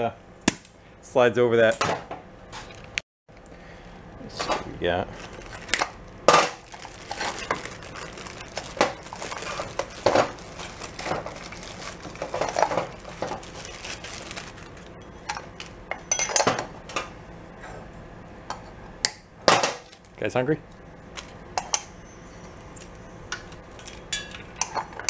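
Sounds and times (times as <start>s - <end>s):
plastic bag crinkling: 4.9s - 15.7s.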